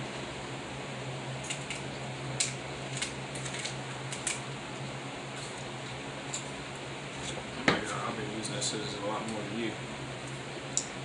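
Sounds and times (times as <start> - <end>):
low background hum: 0.0 - 11.0
crab shells cracking: 1.4 - 4.5.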